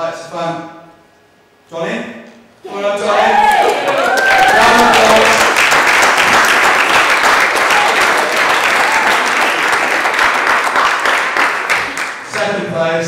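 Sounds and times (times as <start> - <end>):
audience applauding: 3.2 - 12.6.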